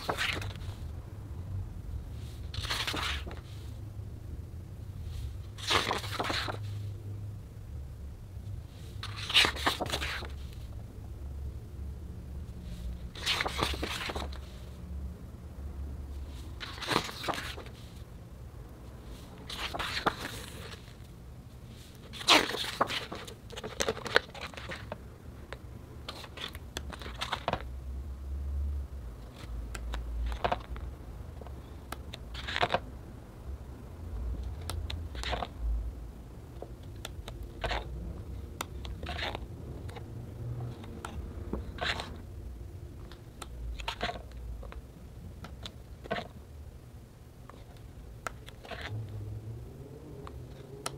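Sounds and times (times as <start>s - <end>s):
book pages being turned: 0.0s - 0.8s, 2.1s - 3.8s, 5.1s - 6.9s, 8.8s - 10.8s, 12.6s - 14.7s, 16.3s - 18.0s, 19.0s - 21.1s, 21.8s - 25.0s, 26.1s - 27.7s, 29.3s - 30.8s, 31.9s - 32.8s, 34.6s - 35.6s, 37.0s - 37.9s, 38.6s - 40.0s, 40.7s - 42.2s, 43.4s - 44.8s, 47.5s - 49.0s.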